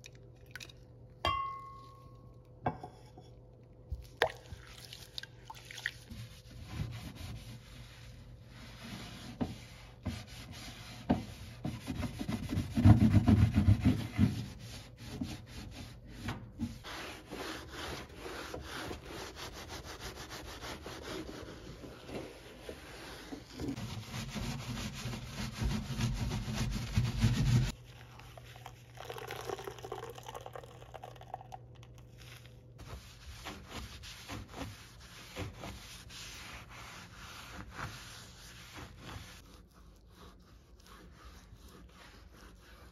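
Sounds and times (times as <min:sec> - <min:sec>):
sponge scrubbing metal surface: 0:06.1 - 0:27.8, 0:32.8 - 0:42.9.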